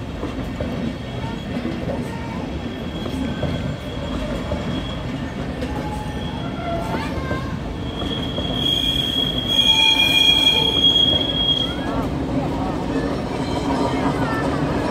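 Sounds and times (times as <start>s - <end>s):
train wheels rumbling on rails: 0.0s - 14.9s
train wheels squealing: 1.0s - 12.1s.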